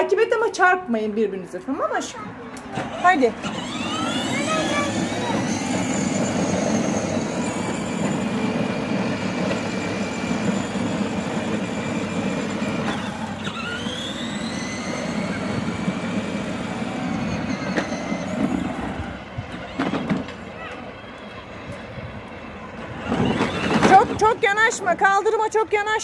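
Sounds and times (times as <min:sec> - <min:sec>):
plastic wheels rolling on asphalt: 0:02.6 - 0:26.0
electric motor whine: 0:02.8 - 0:20.2.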